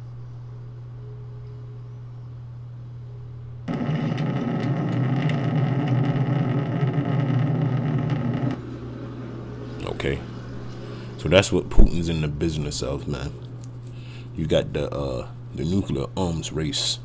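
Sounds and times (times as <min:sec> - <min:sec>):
low steady hum: 0:00.0 - 0:17.0
rocket motor roaring: 0:03.7 - 0:13.3.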